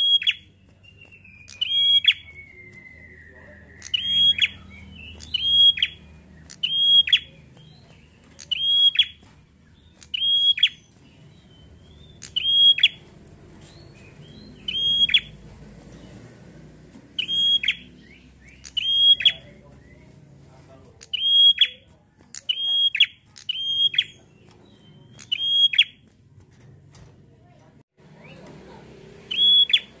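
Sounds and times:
bird calling sharp high notes: 0.0 - 7.6, 8.4 - 9.3, 9.9 - 11.0, 11.6 - 13.1, 14.2 - 15.4, 17.1 - 20.1, 21.0 - 26.0, 29.2 - 30.0.

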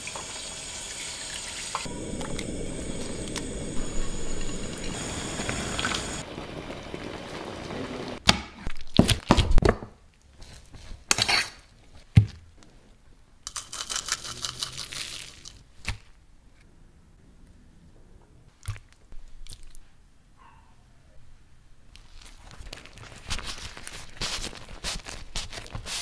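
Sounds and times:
sauce sizzling in a frying pan: 0.0 - 6.3
crinkling rustle: 21.9 - 26.0.

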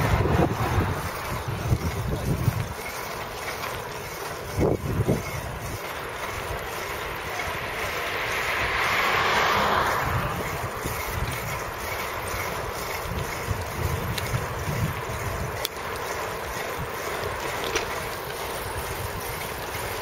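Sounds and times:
street noise: 0.0 - 20.0
wind buffeting microphone: 0.0 - 20.0.

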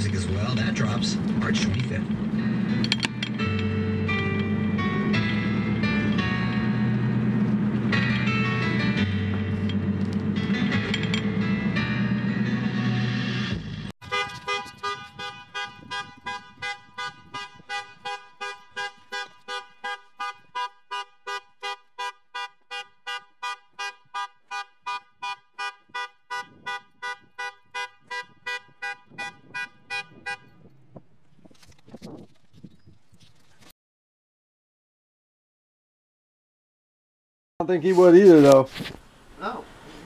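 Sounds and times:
car alarm horn honking: 14.0 - 30.7.

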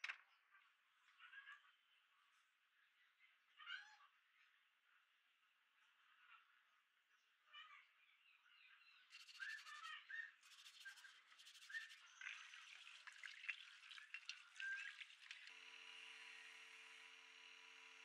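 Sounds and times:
plastic brush scrubbing metal grille: 9.1 - 15.5
electric motor hum: 9.1 - 18.0
water splashing and dripping: 10.5 - 15.5.

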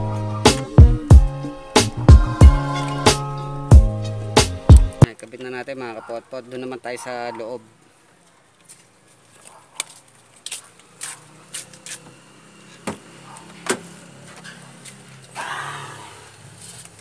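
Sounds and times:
footsteps: 8.1 - 15.4, 16.3 - 17.0.

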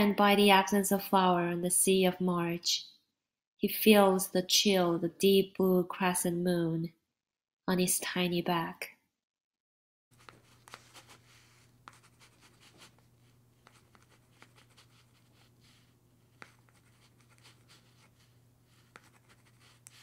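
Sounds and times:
chalk scratching on blackboard: 10.1 - 20.0.

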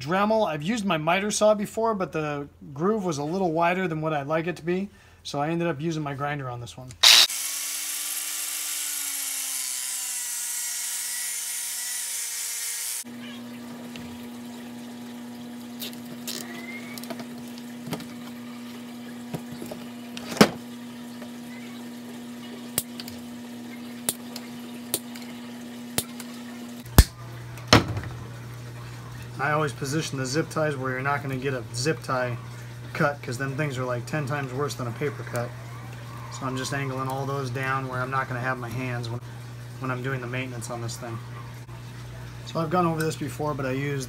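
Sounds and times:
angle grinder cutting plastic pipe: 7.0 - 13.1.

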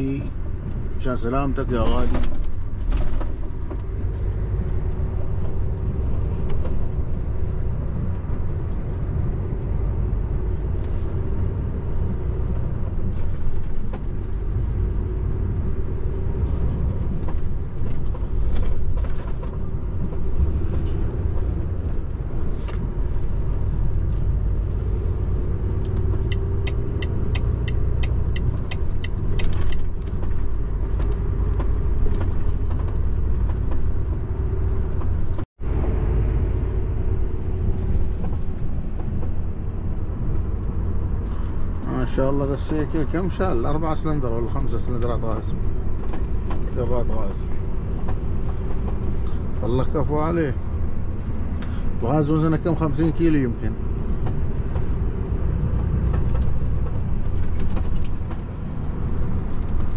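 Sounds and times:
truck diesel engine and road rumble: 0.0 - 59.9
knocks and rattles: 53.9 - 59.9.

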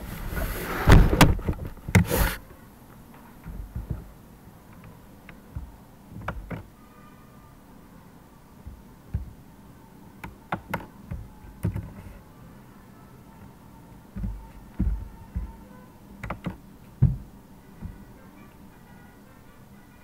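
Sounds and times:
keyboard and mouse clicks: 16.2 - 16.6.

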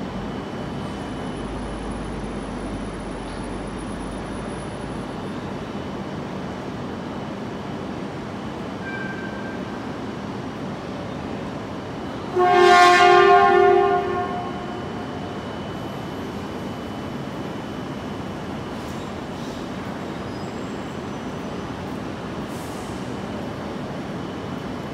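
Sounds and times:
rail and station hum: 0.0 - 24.9
train horn: 12.2 - 15.1.

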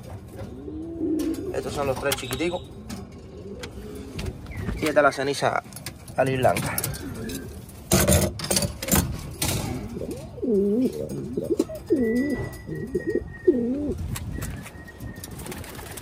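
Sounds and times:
pigeon cooing: 0.3 - 4.8, 6.6 - 7.7, 9.6 - 16.0
wire cage door rattling: 5.7 - 13.2.

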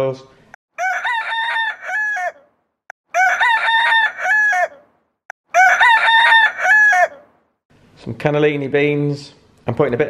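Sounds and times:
cartoon rooster crow: 0.8 - 2.5, 3.1 - 4.9, 5.5 - 7.3.

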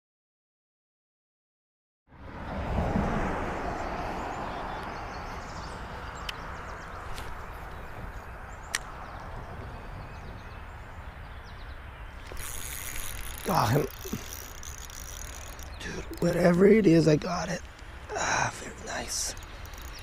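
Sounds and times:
outdoor background noise: 2.1 - 20.0
fishing reel clicks: 12.2 - 16.8, 19.1 - 20.0.

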